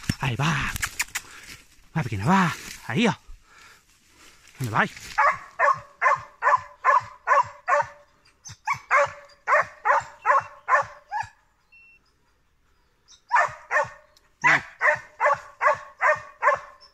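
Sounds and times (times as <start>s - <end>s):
dog barking: 5.2s - 11.4s, 13.3s - 16.9s.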